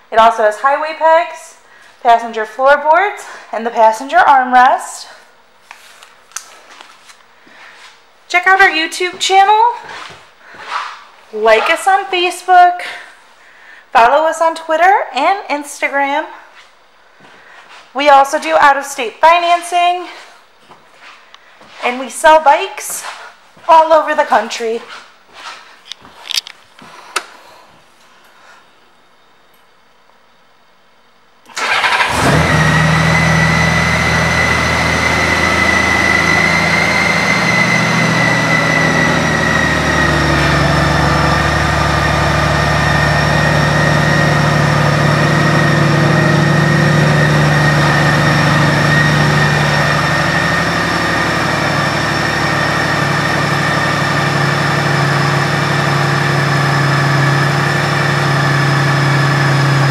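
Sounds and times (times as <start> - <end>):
motorcycle engine starting and idling: 31.5 - 59.9
high whine: 32.2 - 59.9.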